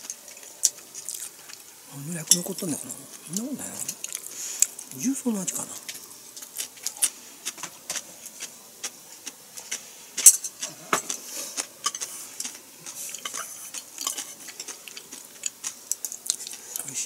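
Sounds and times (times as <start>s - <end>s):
utensils clicking against dishes: 10.2s - 16.6s.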